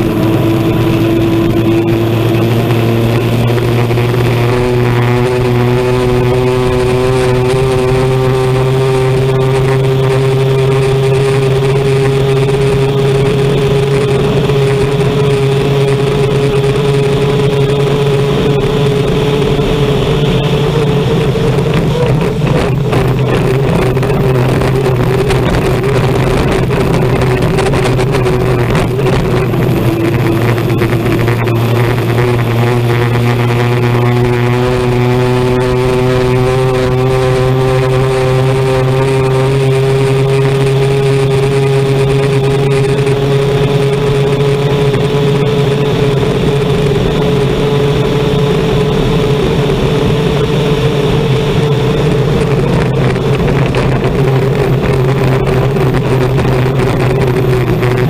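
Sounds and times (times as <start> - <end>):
gas turbine engine running flat out: 0.0 - 58.0.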